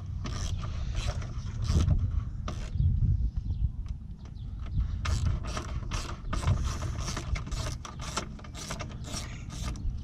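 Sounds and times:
ratchet wrench clicking: 0.3 - 1.9.

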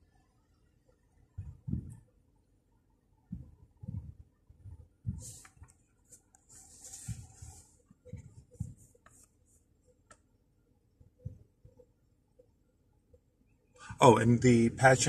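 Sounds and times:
rustling and handling noise: 5.1 - 10.2.

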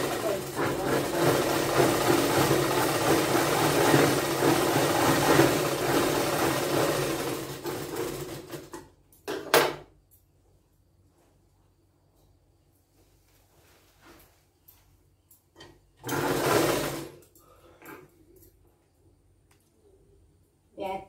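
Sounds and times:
sewing machine stitching: 0.0 - 8.9, 16.0 - 17.2.

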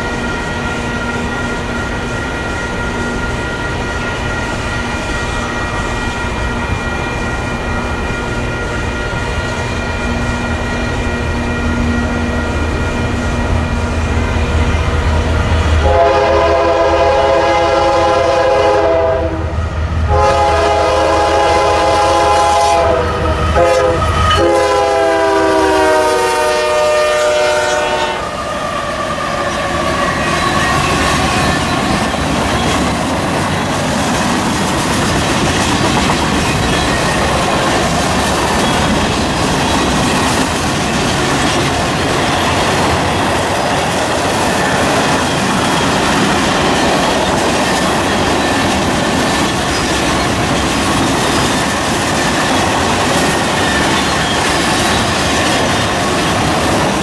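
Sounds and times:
diesel locomotive rumbling: 0.0 - 57.0
train air horn blasts: 15.8 - 31.6
freight cars wheel clickety-clack: 29.9 - 57.0.

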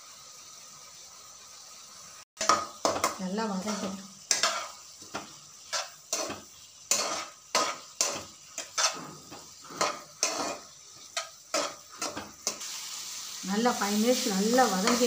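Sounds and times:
metal spatula scraping metal pan: 2.4 - 12.9, 14.2 - 15.0.

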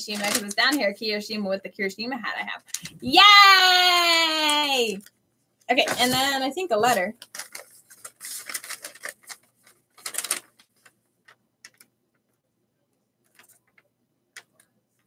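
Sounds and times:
paper rustling and crinkling: 0.0 - 0.8, 2.6 - 3.1, 5.7 - 11.9, 13.2 - 13.8.

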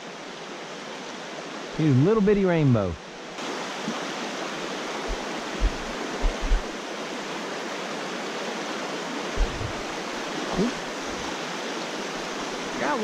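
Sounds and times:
creek rushing over rocks: 0.0 - 13.0
low thumps: 5.1 - 6.7, 9.4 - 10.0.

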